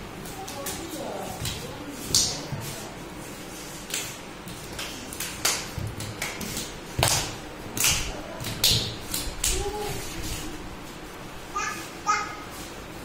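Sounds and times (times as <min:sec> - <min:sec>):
hand claps: 0:01.4 - 0:02.4, 0:03.8 - 0:09.7.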